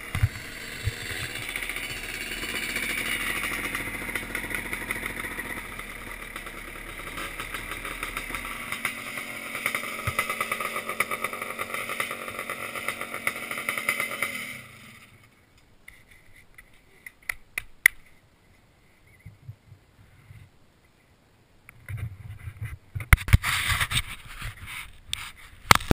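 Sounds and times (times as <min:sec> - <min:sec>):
two-stroke engine running: 0:00.0 - 0:15.3.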